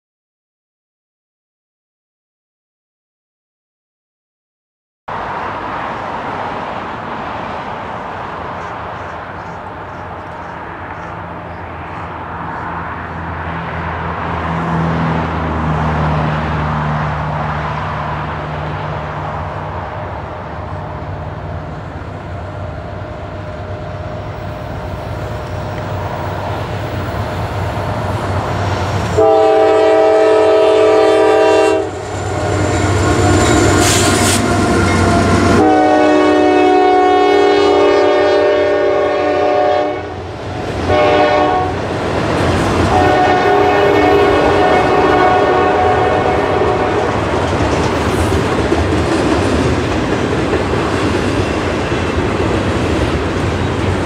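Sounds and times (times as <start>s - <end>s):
diesel locomotive engines droning: 5.1s - 54.0s
train rumble: 5.1s - 54.0s
locomotive horn blast: 29.1s - 40.2s, 40.8s - 41.8s, 42.8s - 47.2s.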